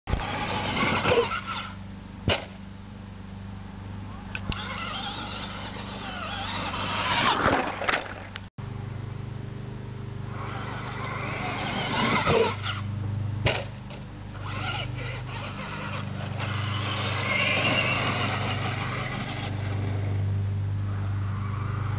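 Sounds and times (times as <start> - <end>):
toy truck electric motor whining: 0.1 - 1.8, 4.4 - 7.8, 10.3 - 12.9, 14.3 - 20.0.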